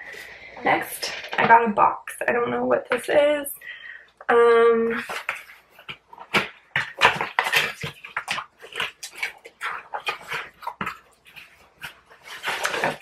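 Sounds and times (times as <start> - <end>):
packaging crinkling and tearing: 5.0 - 13.0.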